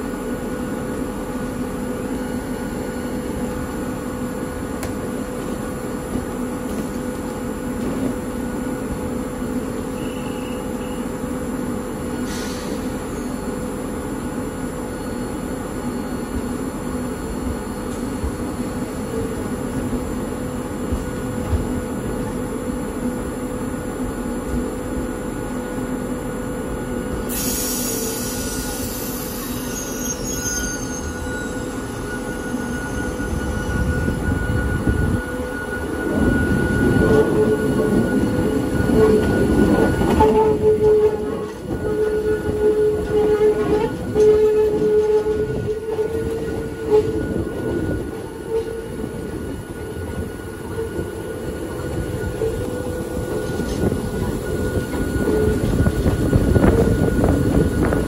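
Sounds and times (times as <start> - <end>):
electric railcar rumbling: 0.0 - 58.0
wheel flange squeal: 27.3 - 58.0.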